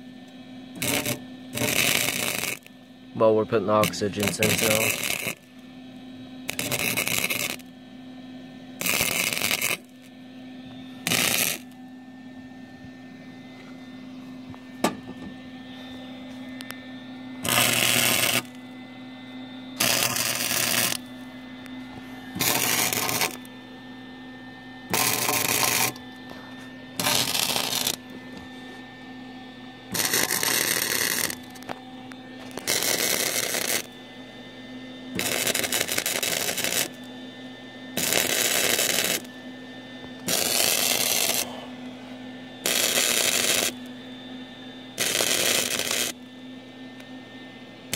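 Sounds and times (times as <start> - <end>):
steady hum: 0.0 - 47.9
arc welding bursts: 0.7 - 5.6, 6.4 - 7.7, 8.8 - 10.1, 11.0 - 11.8, 17.4 - 18.6, 19.8 - 21.1, 22.3 - 23.5, 24.9 - 26.0, 27.0 - 28.1, 29.9 - 31.6, 32.5 - 34.0, 35.1 - 37.0, 38.0 - 39.3, 40.2 - 41.6, 42.6 - 43.9, 45.0 - 46.2.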